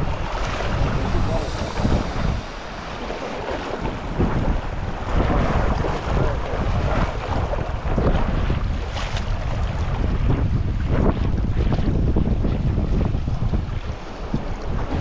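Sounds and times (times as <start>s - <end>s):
river water rushing: 0.0s - 5.3s
wind buffeting the microphone: 0.0s - 15.0s.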